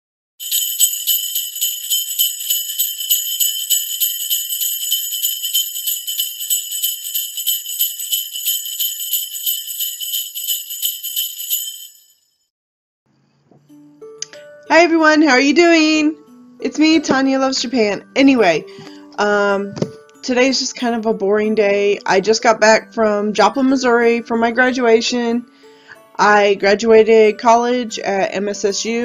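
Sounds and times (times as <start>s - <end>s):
sleigh bells jingling: 0.4s - 12.4s.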